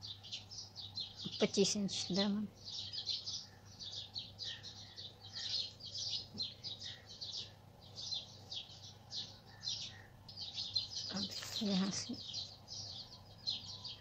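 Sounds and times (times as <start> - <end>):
birds chirping: 0.0 - 14.0
faint low hum: 0.0 - 14.0.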